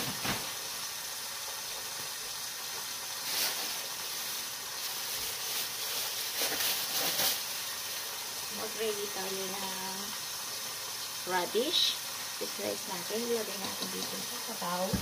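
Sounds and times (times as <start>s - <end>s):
steady hiss: 0.0s - 15.0s
plastic bag crinkling: 3.2s - 7.6s.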